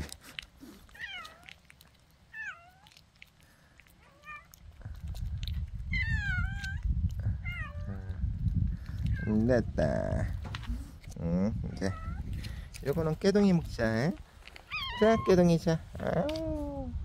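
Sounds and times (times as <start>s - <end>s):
cat meowing: 0.9s - 1.6s, 4.0s - 4.6s, 5.9s - 8.0s, 11.8s - 12.2s, 14.7s - 15.4s.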